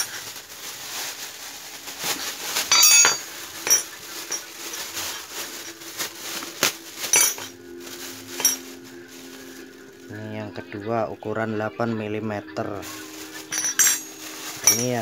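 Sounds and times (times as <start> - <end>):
plastic bag crinkling: 0.0 - 10.4, 12.6 - 15.0
metal wrench clinking: 2.7 - 4.5, 7.0 - 7.5, 8.4 - 8.6, 13.5 - 15.0.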